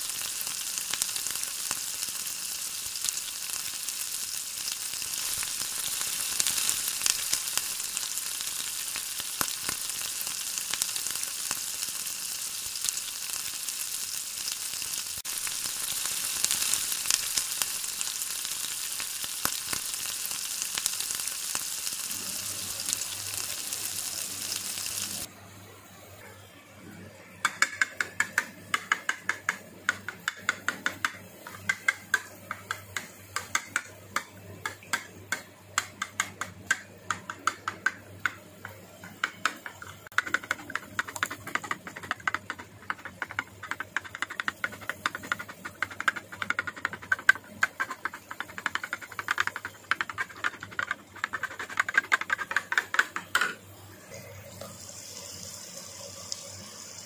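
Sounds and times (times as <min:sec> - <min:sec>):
egg sizzling in a pan: 0:00.0 - 0:25.3, 0:27.4 - 0:53.6, 0:54.6 - 0:57.0
spoon beating eggs in bowl: 0:27.5 - 0:53.6.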